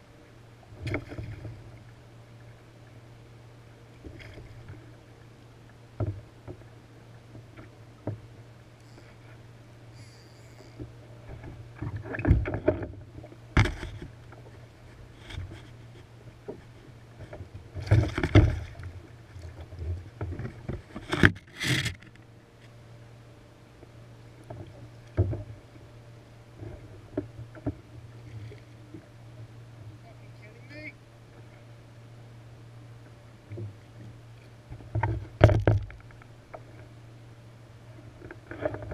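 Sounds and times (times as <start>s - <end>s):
steady low hum: 0.0s - 38.9s
water splashes: 16.5s - 22.0s
knocks on kayak: 35.4s - 36.0s.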